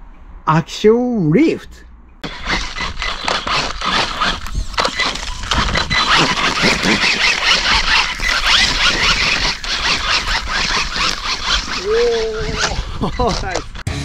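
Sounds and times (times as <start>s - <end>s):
sand hitting camera: 2.2s - 13.9s
tires churning through sand: 2.2s - 14.0s.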